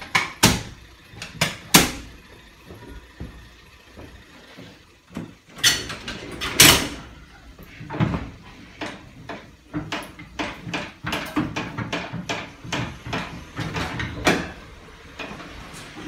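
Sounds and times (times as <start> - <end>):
gate wheel clanks: 5.2 - 16.0.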